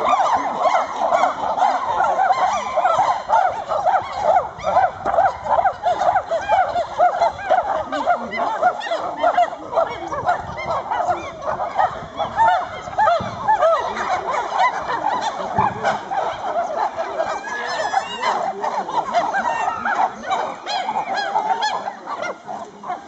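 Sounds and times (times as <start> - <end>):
chimpanzees hooting: 0.0 - 23.0.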